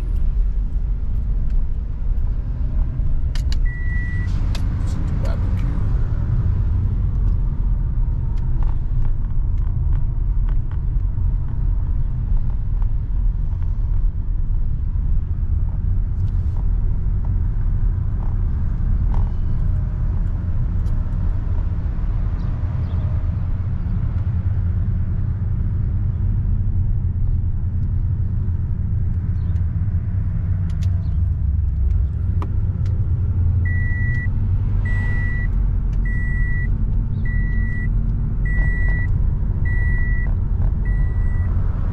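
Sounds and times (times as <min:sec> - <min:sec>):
car road and engine rumble: 0:00.0 - 0:41.9
high beep: 0:03.7 - 0:04.3, 0:33.7 - 0:34.3, 0:34.9 - 0:35.5, 0:36.1 - 0:36.7, 0:37.3 - 0:37.9, 0:38.5 - 0:39.1, 0:39.7 - 0:40.3, 0:40.9 - 0:41.5.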